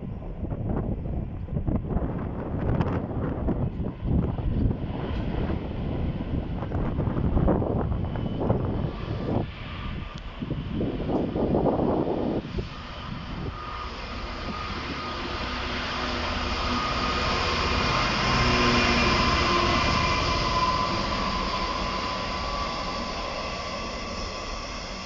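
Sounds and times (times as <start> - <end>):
diesel locomotive passing: 0.0 - 25.0
faint high whine: 7.4 - 25.0.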